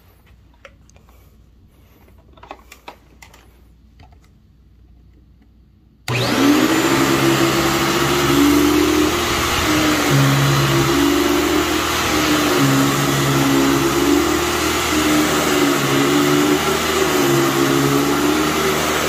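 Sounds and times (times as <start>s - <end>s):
vacuum cleaner motor running: 6.1s - 19.0s.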